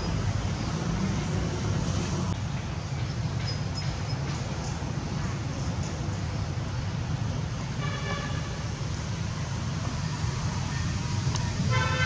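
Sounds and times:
low rumble of road traffic: 0.0s - 12.0s
vehicle horn toot: 11.7s - 12.0s.

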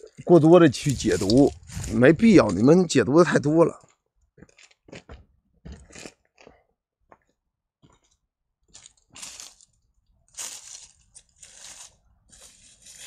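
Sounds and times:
footsteps crunching dry leaves: 0.7s - 2.8s, 8.8s - 13.0s.

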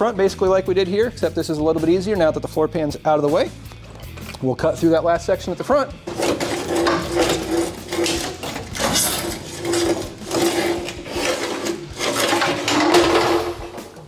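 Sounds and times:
sheet metal creaking and scraping: 6.1s - 14.0s.

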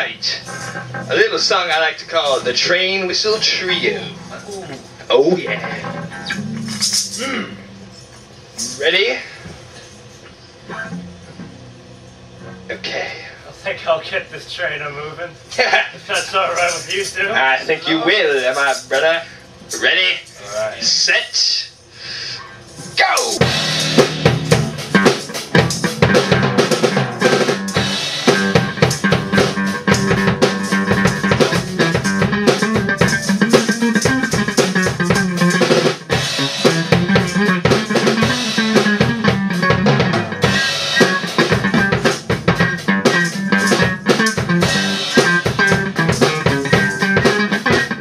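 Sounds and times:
drum kit fast rhythm: 0.0s - 4.9s, 5.5s - 7.6s, 16.1s - 17.3s, 18.1s - 19.2s, 23.2s - 48.0s
electric guitar: 0.0s - 8.8s, 9.4s - 12.8s, 23.2s - 48.0s
rock band jamming: 0.0s - 12.9s, 14.9s - 20.6s, 22.6s - 48.0s.

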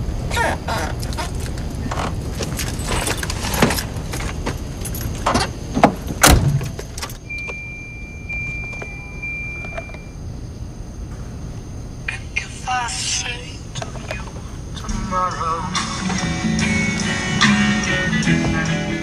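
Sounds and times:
keys jangling: 4.8s - 5.4s
car door shutting thump: 5.3s - 6.7s
steady high tone: 12.1s - 19.0s.

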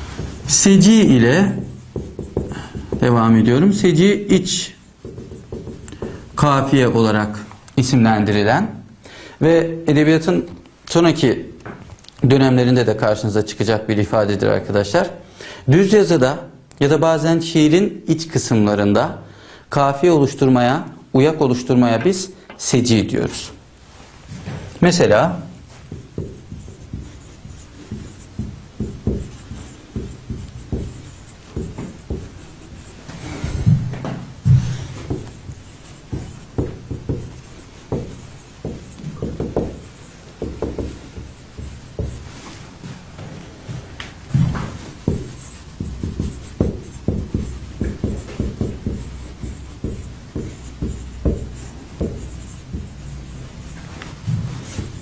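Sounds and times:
marker tapping and stroking whiteboard: 0.0s - 8.3s, 24.3s - 55.0s.

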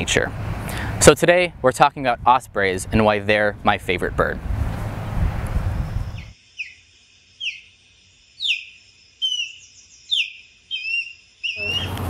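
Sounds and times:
osprey calling: 6.0s - 6.8s, 7.4s - 7.8s, 8.4s - 12.0s.

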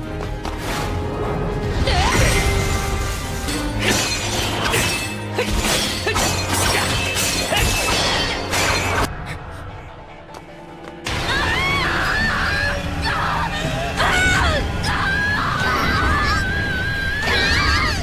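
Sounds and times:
dramatic background music: 0.0s - 18.0s
sword clashing and shattering hits: 3.1s - 9.1s.

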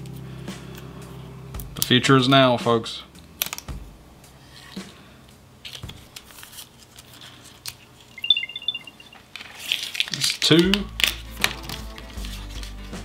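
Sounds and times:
high beeps: 8.2s - 9.2s
electronic chirping chime: 8.2s - 9.3s
plastic rustling and clicks: 9.3s - 12.0s.

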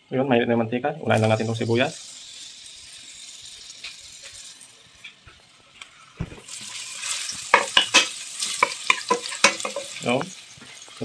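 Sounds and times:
onion sizzling in hot oil: 1.0s - 11.0s
thump: 6.2s - 6.4s.

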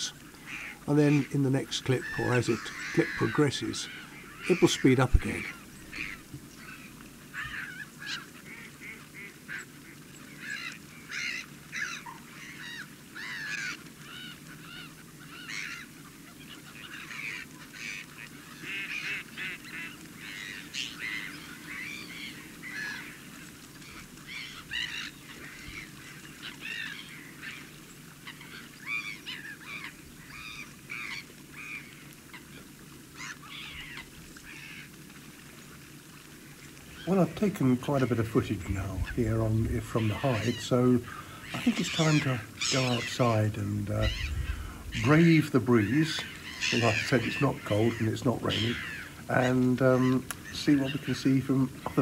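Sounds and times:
flock of birds calling: 0.0s - 52.0s
low background rumble: 36.9s - 41.8s, 43.4s - 46.7s.

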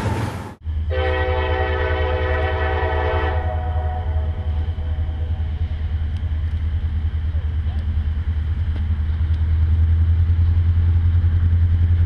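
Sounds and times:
low locomotive rumble: 0.0s - 12.0s
locomotive air horn chord: 0.9s - 5.9s.

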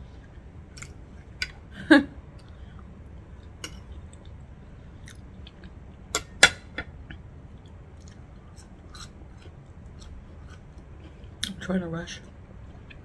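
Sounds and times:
soft chewing: 2.4s - 6.0s, 6.9s - 13.0s.

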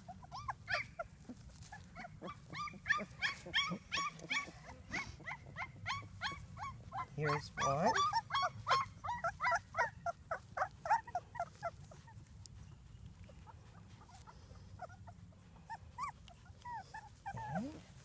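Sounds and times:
puppy whimpering and squeaking: 0.0s - 18.0s.

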